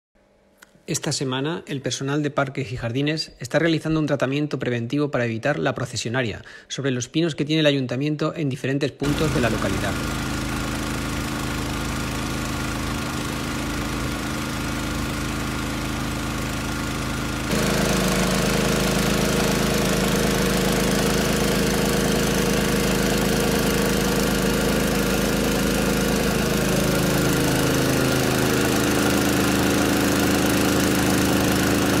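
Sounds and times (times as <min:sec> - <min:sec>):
hose spraying: 0:09.0 - 0:32.0
sprayer pump engine running: 0:09.0 - 0:32.0.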